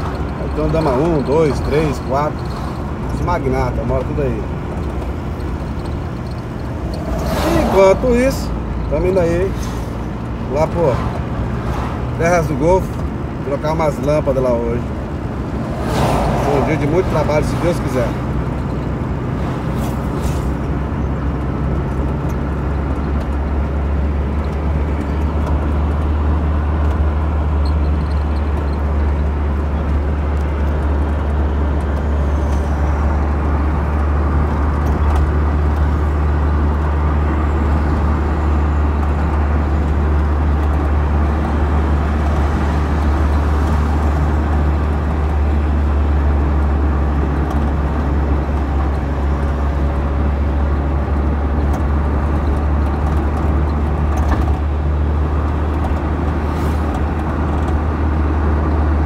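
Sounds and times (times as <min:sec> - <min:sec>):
car engine and road rumble: 0:00.0 - 0:59.0
tyre noise: 0:04.8 - 0:08.6.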